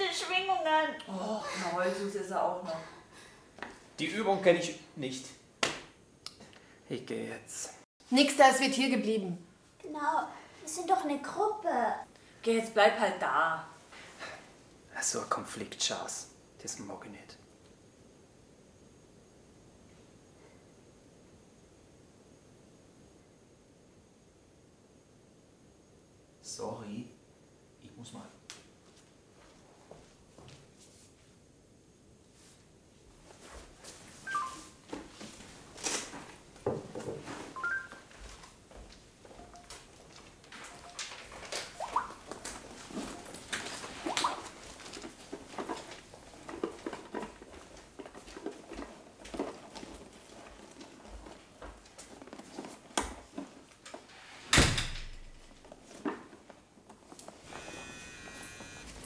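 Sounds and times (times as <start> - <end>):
phone three-note beeps: 37.6 - 38.0, 57.5 - 58.8
handling rustles and knocks: 38.2 - 54.2.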